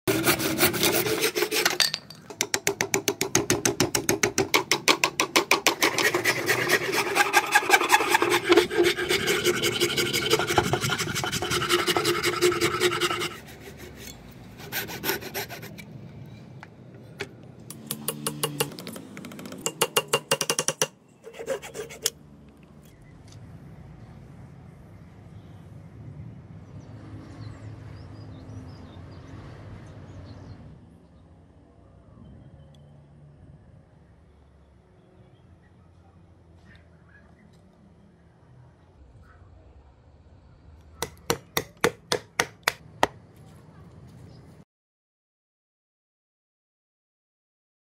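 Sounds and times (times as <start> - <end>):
hand saw cutting wood: 0.1 - 1.9, 2.7 - 15.9, 19.7 - 22.2, 41.0 - 42.8
file scraping wooden handle: 0.1 - 15.9, 19.8 - 22.2.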